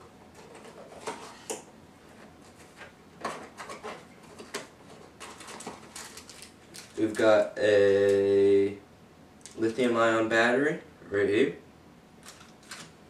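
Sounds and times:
packaging clicks and rustles: 3.3 - 7.4, 12.2 - 12.9.

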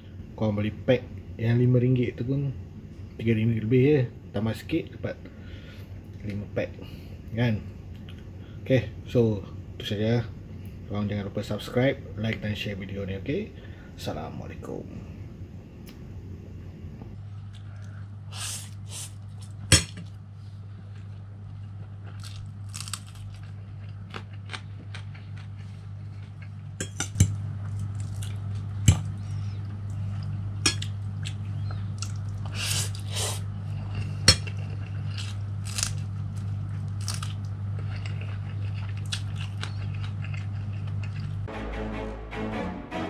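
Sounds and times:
low hum: 0.0 - 43.0
chewing: 20.7 - 26.6, 27.6 - 41.5.

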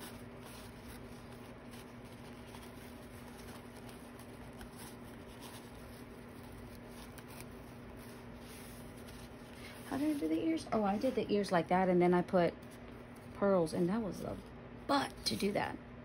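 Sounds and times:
fabric rustling: 0.0 - 11.6
steady hum: 0.0 - 16.0.

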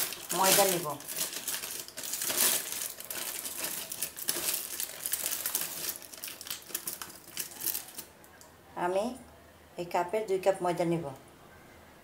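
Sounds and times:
paper packet crinkling: 0.0 - 8.1.

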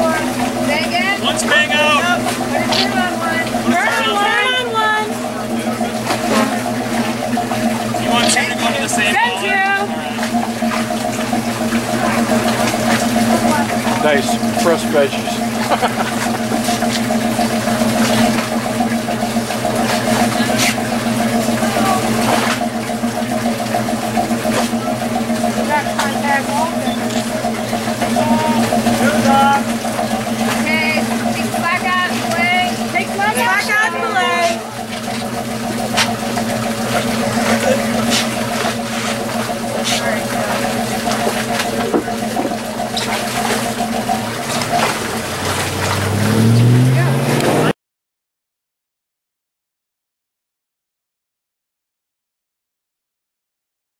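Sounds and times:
faint voices: 0.0 - 17.2, 24.2 - 45.7
engine idling: 0.0 - 47.7.

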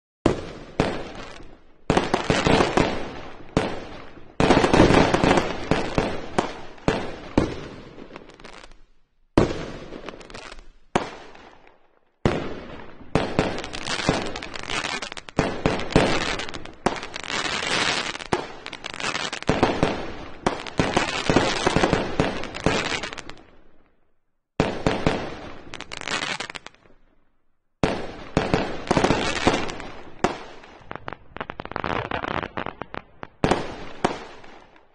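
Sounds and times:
fireworks bangs and crackle: 0.2 - 23.8, 24.6 - 27.1, 27.8 - 34.9.

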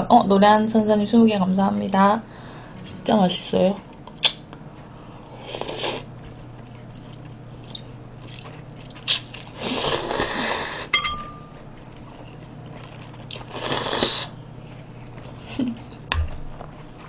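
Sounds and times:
person slurping noodles: 5.4 - 6.1, 9.6 - 10.9, 13.4 - 14.4
sharp ringing clink: 10.9 - 11.6.

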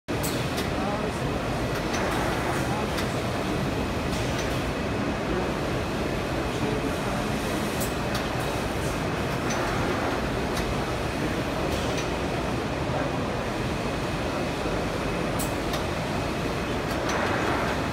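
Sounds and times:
machine mechanical din: 16.8 - 17.9.

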